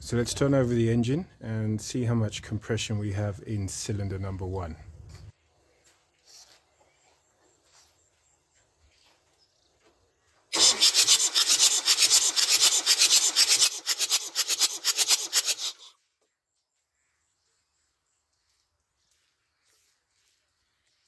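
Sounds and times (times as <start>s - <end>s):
engine cranking on starter motor: 10.5s - 15.9s.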